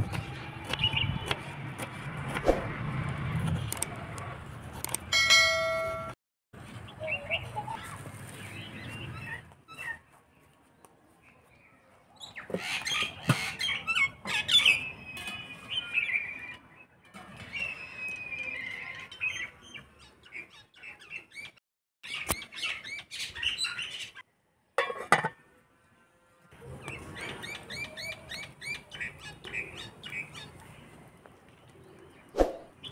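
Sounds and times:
birds chirping: 0:26.7 - 0:32.9.

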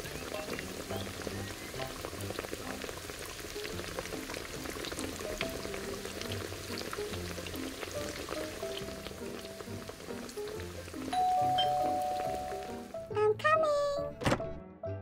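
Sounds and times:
fish frying in hot oil: 0:00.0 - 0:13.1
background music: 0:00.0 - 0:15.0.

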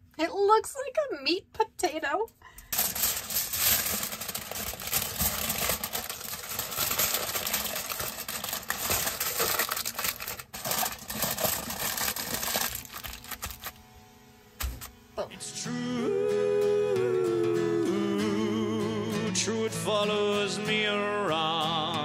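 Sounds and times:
aluminum foil crinkling: 0:02.6 - 0:13.8, 0:14.6 - 0:14.9.

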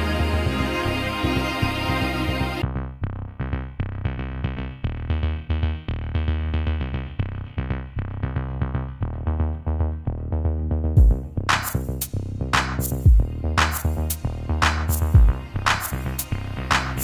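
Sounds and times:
synthesizer notes: 0:00.0 - 0:02.6
drum machine beat with heavy bass: 0:11.0 - 0:17.0.

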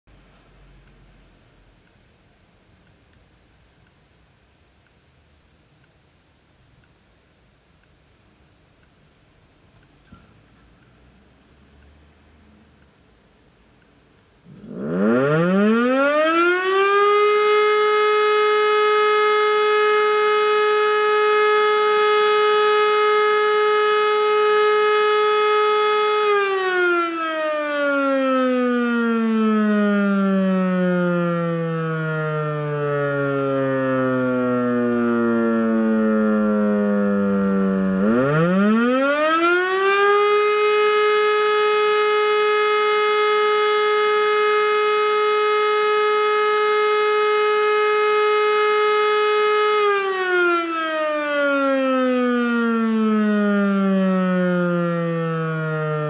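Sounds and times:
electro-mechanical siren wailing: 0:14.5 - 0:56.0.

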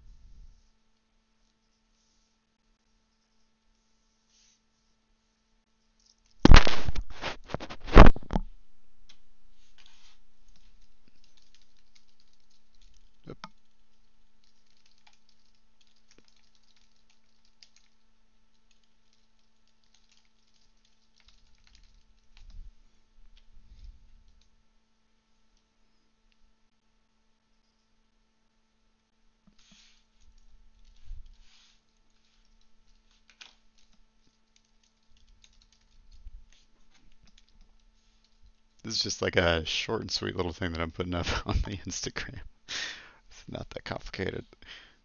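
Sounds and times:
keyboard typing: 0:09.8 - 0:22.6, 0:29.5 - 0:38.8.

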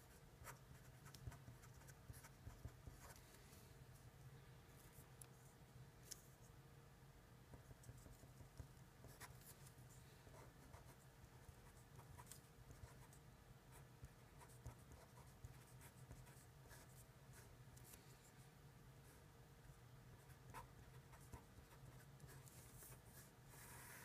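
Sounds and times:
low room hum: 0:00.0 - 0:24.0
marker pen scratching on paper: 0:00.4 - 0:03.2, 0:14.4 - 0:17.5.

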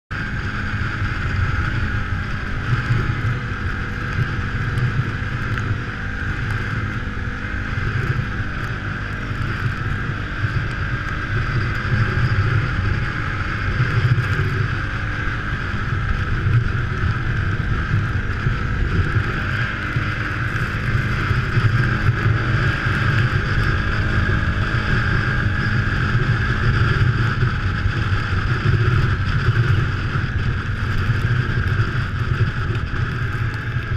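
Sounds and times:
off-road vehicle engine: 0:00.0 - 0:33.9.

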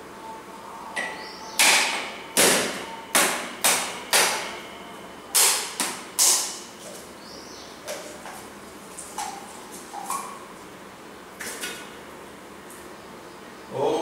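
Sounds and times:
sharp knocks: 0:01.6 - 0:04.6.

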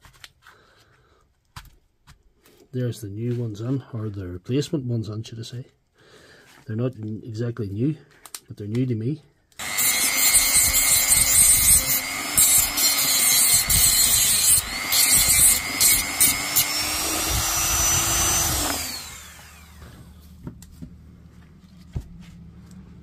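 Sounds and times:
motor winding down: 0:09.6 - 0:20.2
rotary tool grinding: 0:09.6 - 0:20.2.

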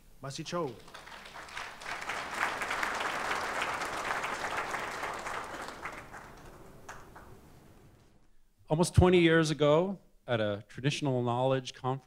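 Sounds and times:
audience applauding: 0:00.6 - 0:08.0.

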